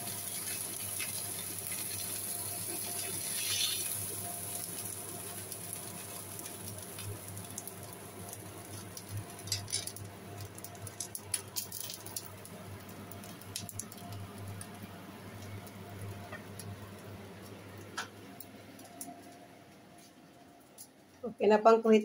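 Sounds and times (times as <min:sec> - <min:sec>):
oil crackling in frying pan: 0:00.0 - 0:19.1
sharp pops and clicks: 0:17.8 - 0:19.4.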